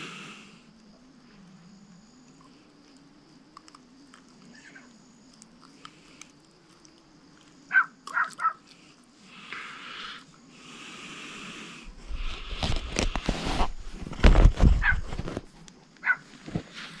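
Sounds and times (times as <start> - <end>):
animal calling: 4.4 - 5.0, 7.7 - 8.8.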